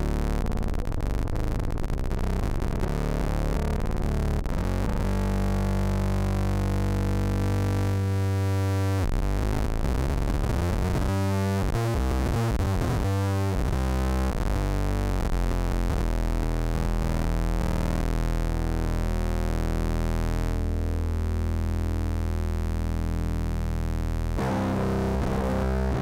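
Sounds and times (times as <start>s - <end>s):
synth-like electric guitar: 24.4s - 26.0s.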